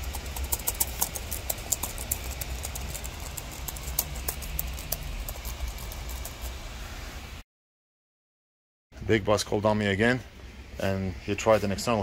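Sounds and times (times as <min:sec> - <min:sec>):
laptop keys clicking: 0:00.0 - 0:06.4
steady low hum: 0:00.0 - 0:07.4.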